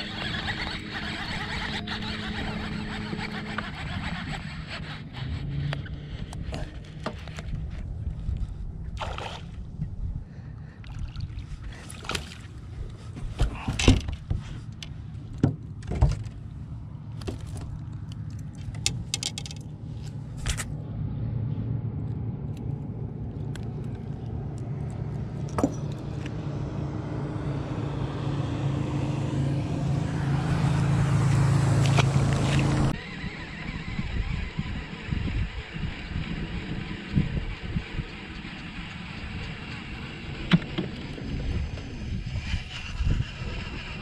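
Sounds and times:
fishing lure and rods rattling: 0:00.0 - 0:05.3, 0:17.1 - 0:20.7
low motor hum: 0:00.0 - 0:44.0.

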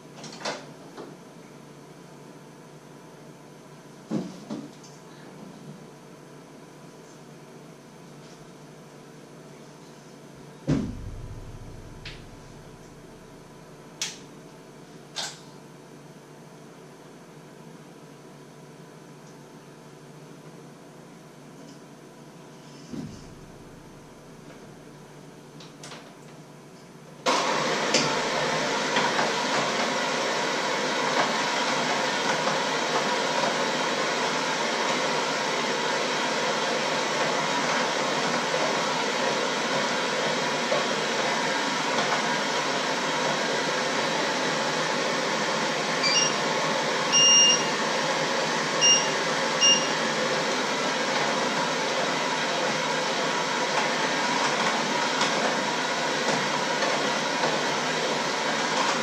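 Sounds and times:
electric mixer running: 0:27.3 - 0:59.0
short electronic beeps: 0:47.1 - 0:47.7, 0:48.8 - 0:49.9.

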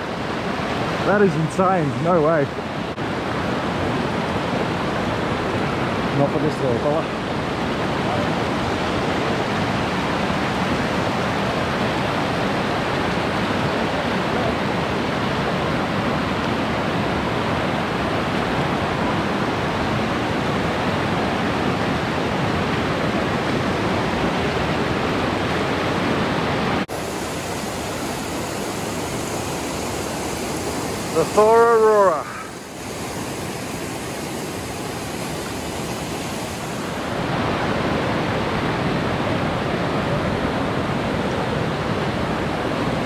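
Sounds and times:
water churning over rocks: 0:26.9 - 0:38.4.

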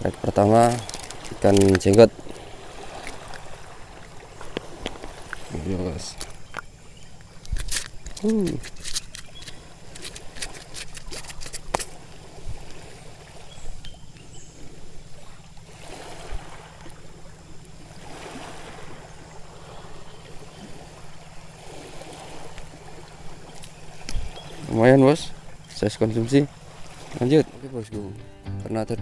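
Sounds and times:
waves washing onto pebbly shore: 0:00.0 - 0:06.6, 0:14.6 - 0:28.0
metal hook clicks: 0:00.7 - 0:02.1, 0:07.4 - 0:11.9.

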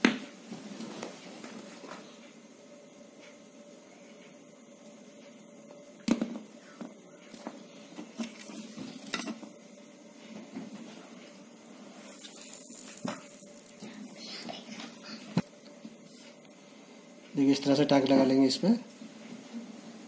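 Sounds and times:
faint steady hum: 0:00.0 - 0:20.0
flux sizzling: 0:11.8 - 0:15.2.

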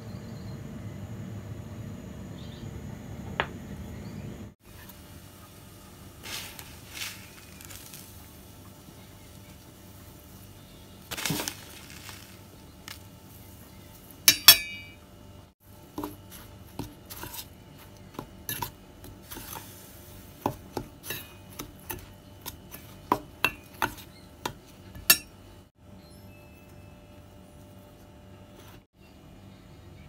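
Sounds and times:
metal spoon clinking and scraping bowl: 0:14.2 - 0:15.0, 0:16.0 - 0:19.8, 0:20.4 - 0:25.4.

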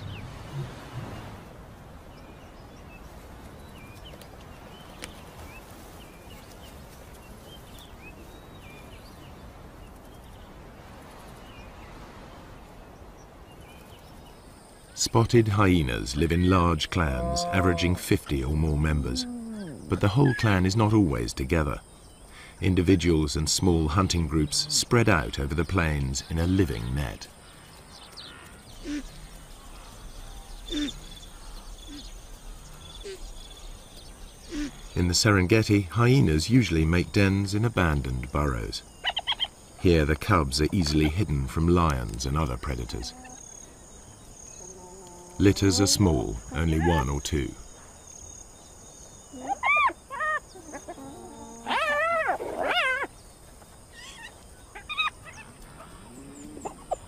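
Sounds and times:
hyena cubs squealing and whining: 0:19.0 - 0:20.4, 0:39.0 - 0:39.5, 0:49.3 - 0:53.2, 0:53.9 - 0:57.0.

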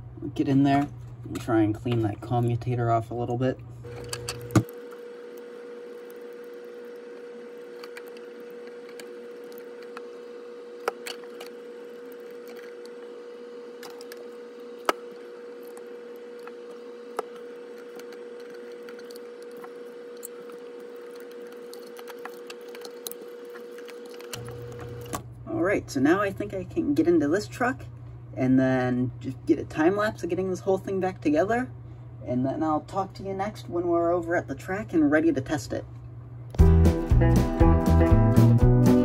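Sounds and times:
faint steady hum: 0:00.0 - 0:36.6
small parts clicking and tapping: 0:07.6 - 0:10.1, 0:10.8 - 0:13.0, 0:13.8 - 0:25.2.

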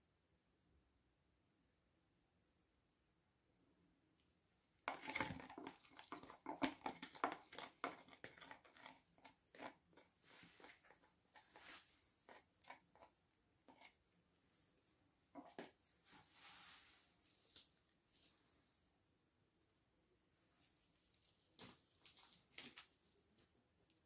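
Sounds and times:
wooden stick scraping plastic tub: 0:04.9 - 0:14.0.

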